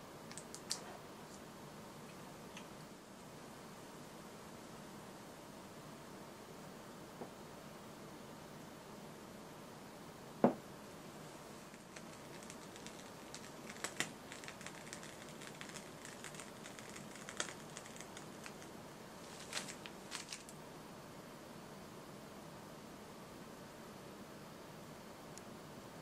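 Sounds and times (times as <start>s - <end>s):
small clicks and crackles: 0.3s - 1.4s, 11.6s - 20.6s.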